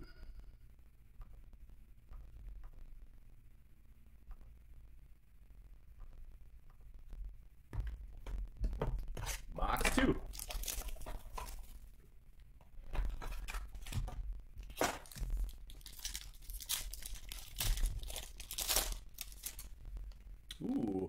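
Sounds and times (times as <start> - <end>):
foil wrapper tearing and crinkling: 9.3 - 11.8, 12.9 - 20.2.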